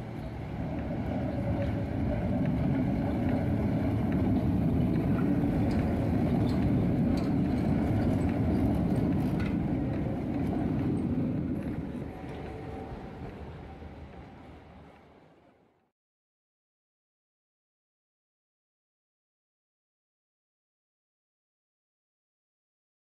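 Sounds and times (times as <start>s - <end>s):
model tram rumbling whir: 0.0s - 15.8s.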